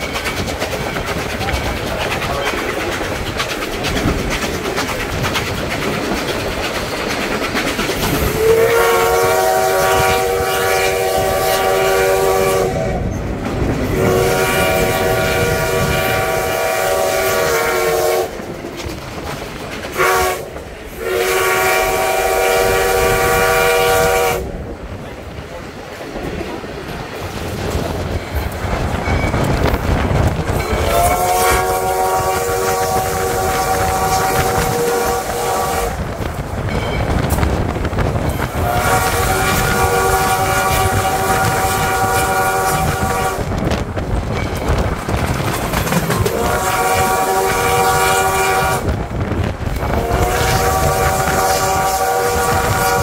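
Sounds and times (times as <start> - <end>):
train rumbling and clattering: 0.0 - 53.0
steam whistle blast: 8.2 - 13.0, 14.0 - 18.4, 20.0 - 24.5, 30.7 - 36.0, 38.5 - 43.5, 46.3 - 48.9, 49.9 - 53.0.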